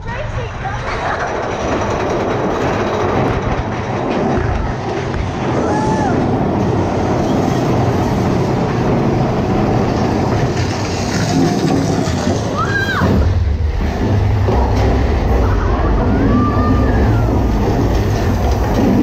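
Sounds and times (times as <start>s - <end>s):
roller coaster cars rattling: 0.0s - 19.0s.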